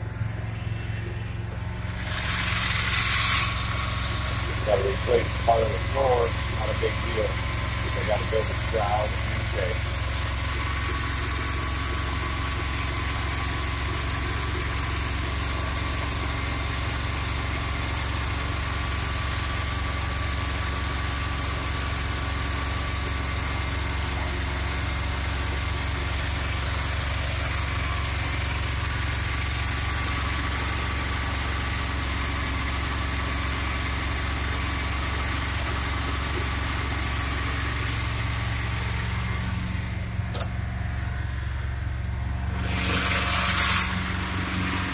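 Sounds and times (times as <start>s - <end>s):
engine idling: 0.0s - 44.9s.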